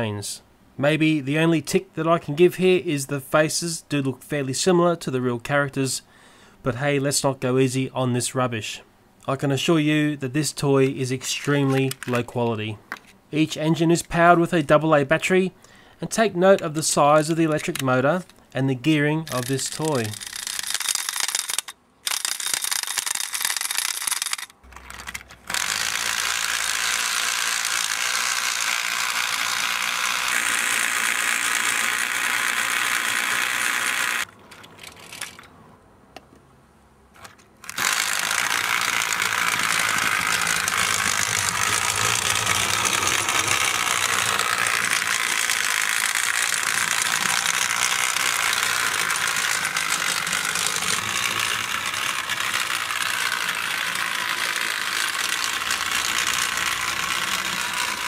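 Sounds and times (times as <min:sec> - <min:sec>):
toy train electric motor running: 0:19.3 - 0:35.4, 0:37.6 - 0:58.0.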